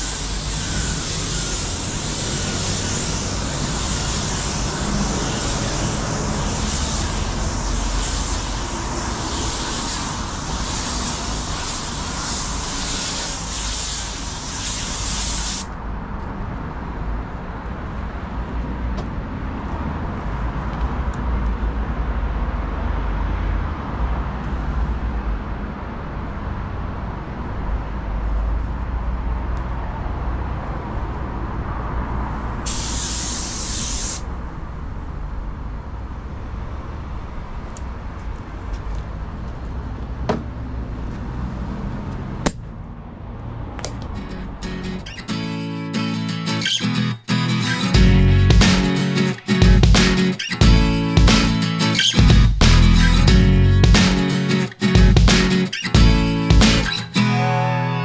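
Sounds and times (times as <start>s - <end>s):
paint spray gun hissing: 0.0s - 15.7s, 32.7s - 34.3s.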